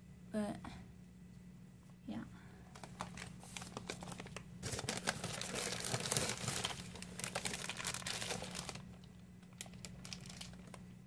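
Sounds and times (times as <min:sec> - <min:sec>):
plastic bag crinkling: 0:02.7 - 0:10.9.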